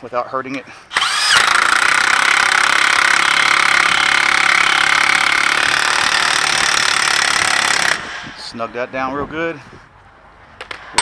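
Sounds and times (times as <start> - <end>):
impact wrench hammering: 1.0 - 8.5.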